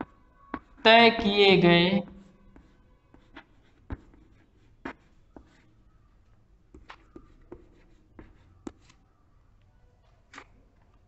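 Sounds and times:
chalk tapping and scratching: 0:02.1 - 0:05.8, 0:06.7 - 0:09.0.

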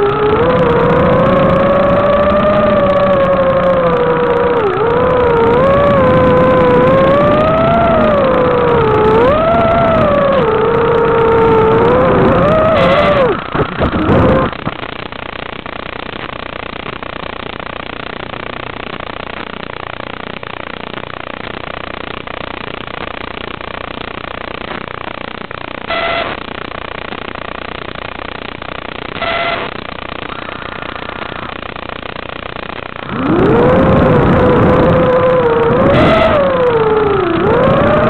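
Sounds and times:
quadcopter motors whining: 0:00.0 - 0:14.6, 0:33.0 - 0:38.0
short electronic beeps: 0:25.9 - 0:26.3, 0:29.2 - 0:29.7.

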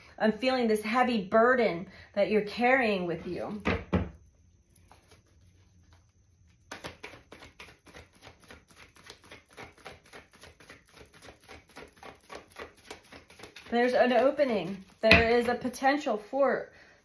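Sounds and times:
cards being shuffled: 0:06.6 - 0:15.6.

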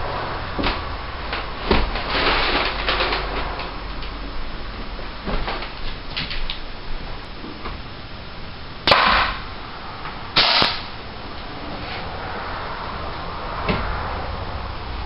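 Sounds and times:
nail gun firing: 0:08.9 - 0:09.4, 0:10.4 - 0:10.9.

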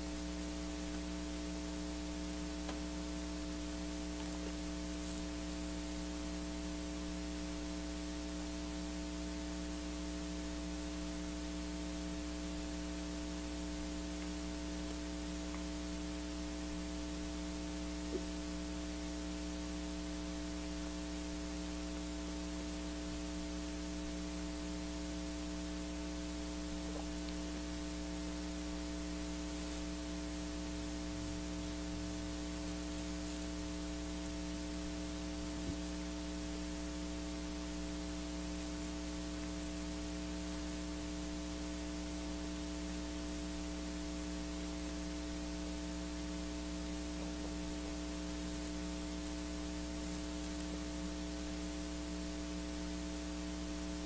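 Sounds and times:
constant hiss: 0:00.0 - 0:54.0
electrical mains hum: 0:00.0 - 0:54.0
faint click: 0:02.6 - 0:02.9, 0:26.9 - 0:27.4.

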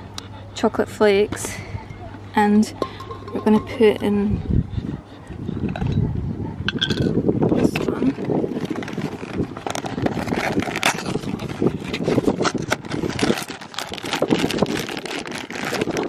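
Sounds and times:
wind buffeting microphone: 0:02.6 - 0:16.0
handling crackles and rustles: 0:06.7 - 0:16.0.

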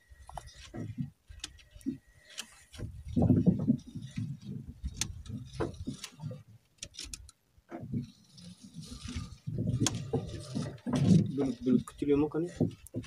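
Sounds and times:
fishing line being hauled in: 0:00.1 - 0:13.0
sharp clicks and knocks: 0:00.3 - 0:13.0
low uneven rumble: 0:07.8 - 0:13.0.

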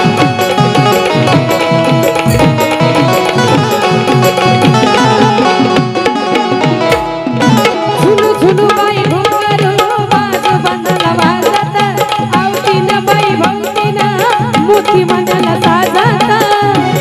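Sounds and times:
melodic accompaniment: 0:00.0 - 0:08.8
hand drum beat: 0:00.0 - 0:17.0
woman singing: 0:07.6 - 0:17.0.

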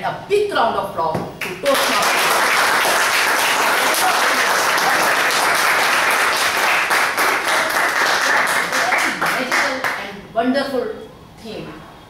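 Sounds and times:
audience applauding: 0:01.4 - 0:10.1.

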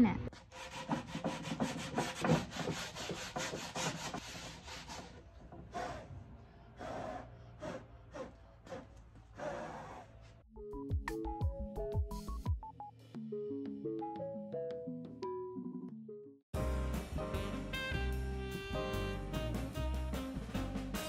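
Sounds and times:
sanding block rubbing wood: 0:00.4 - 0:06.0
music with drums: 0:10.8 - 0:12.6, 0:16.6 - 0:21.0.

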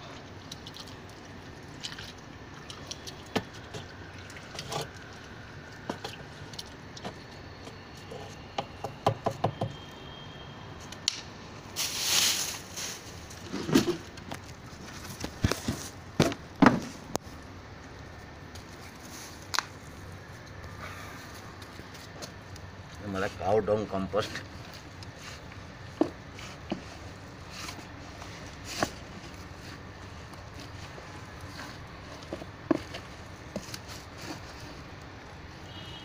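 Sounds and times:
plastic bag rustling: 0:11.8 - 0:16.0.

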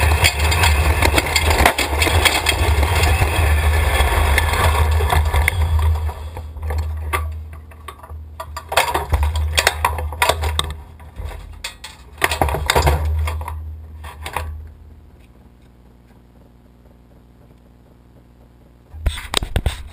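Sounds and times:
engine running in surges: 0:00.0 - 0:07.2
metallic rattling: 0:00.0 - 0:14.6.

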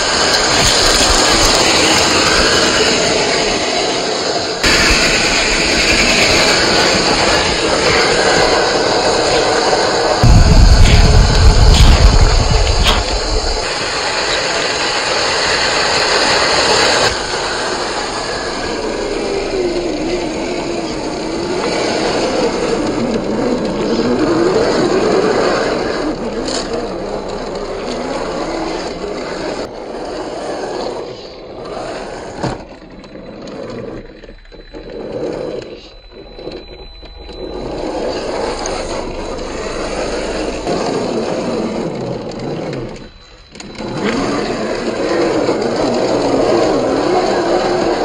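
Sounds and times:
toy car motor whining: 0:11.8 - 0:48.0.

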